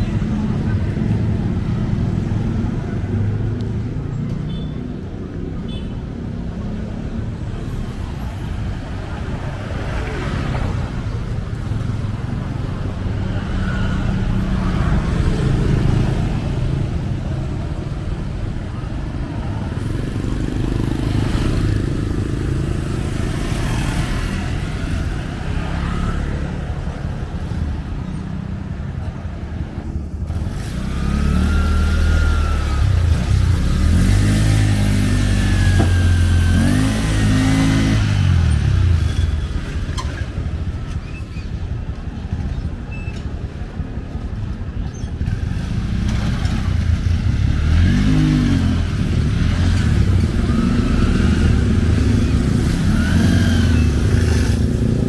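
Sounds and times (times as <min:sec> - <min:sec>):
street traffic passing: 0:00.0 - 0:55.0
motorcycle passing close: 0:30.3 - 0:39.4, 0:45.2 - 0:55.0.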